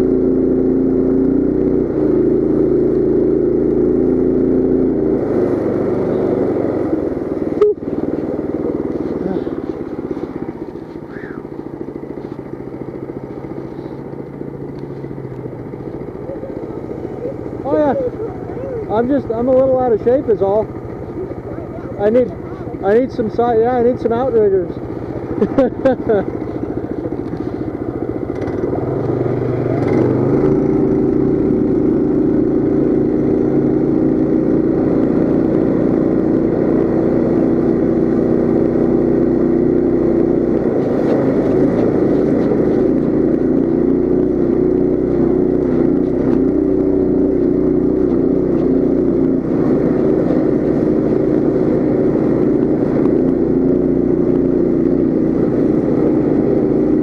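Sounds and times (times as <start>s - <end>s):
mini bike engine revving: 0.0s - 57.0s.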